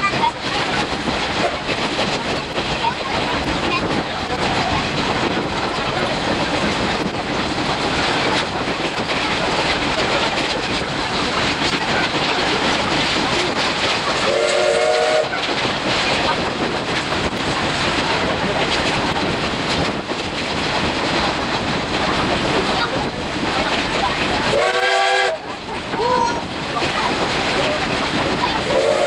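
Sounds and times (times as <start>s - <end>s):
train wheels rumbling on rails: 0.0s - 29.0s
steam locomotive whistle: 14.2s - 15.4s, 24.5s - 25.5s, 28.6s - 29.0s.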